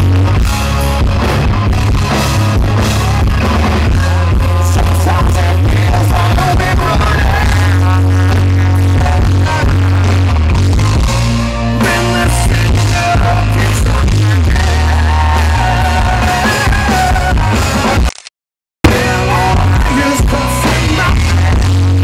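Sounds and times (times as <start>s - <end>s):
live rock band playing: 0.0s - 18.1s, 18.8s - 22.0s
man singing: 3.9s - 10.4s, 11.6s - 17.9s, 18.9s - 22.0s.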